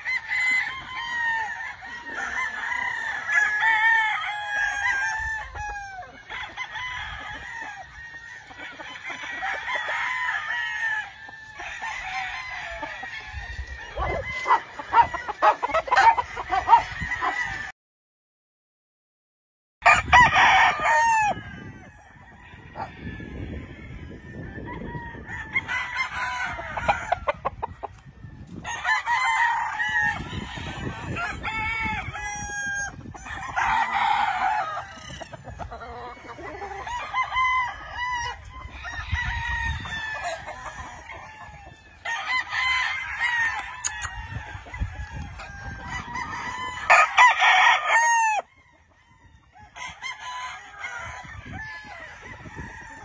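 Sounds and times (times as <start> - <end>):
roosters crowing: 0.0 - 17.7, 19.8 - 53.0
chickens clucking: 4.7 - 17.6, 25.6 - 28.7, 29.8 - 42.1.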